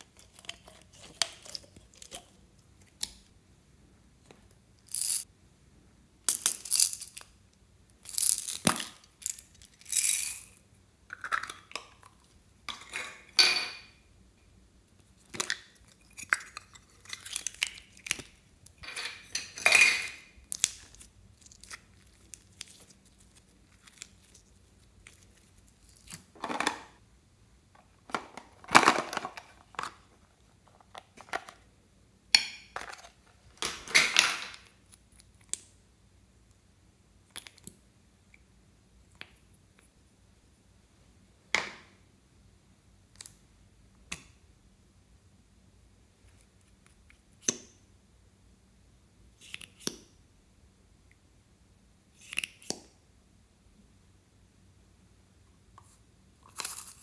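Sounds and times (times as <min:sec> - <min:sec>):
clicks and rustles of handled objects: 0:00.0 - 0:03.3.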